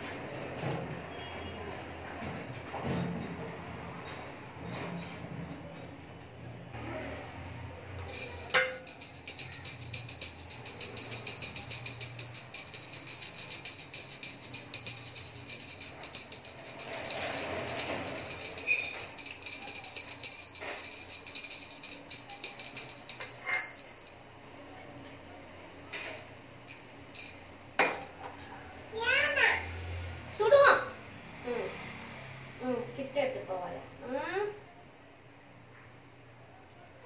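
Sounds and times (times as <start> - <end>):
small brass hand bell ringing: 8.1 - 25.3, 25.9 - 28.4.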